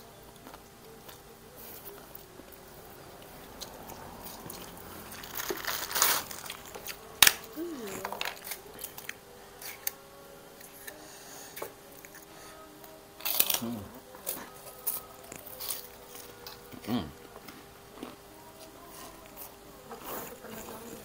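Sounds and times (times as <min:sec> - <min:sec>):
crunching and chewing: 0:00.3 - 0:10.0, 0:13.2 - 0:21.0
loud sharp cracker crack: 0:05.1 - 0:10.0, 0:13.2 - 0:16.6.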